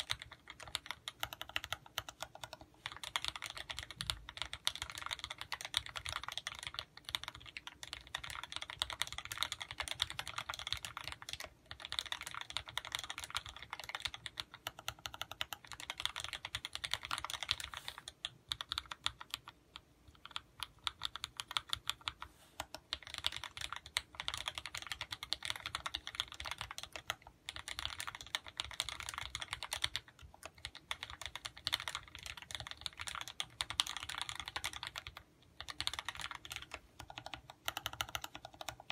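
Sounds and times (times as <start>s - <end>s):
mechanical keyboard typing: 0.0s - 38.9s.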